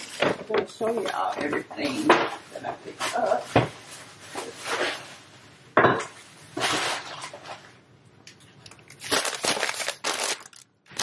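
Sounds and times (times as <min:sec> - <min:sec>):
plastic bags rustling: 0:00.0 - 0:05.4, 0:08.7 - 0:11.0.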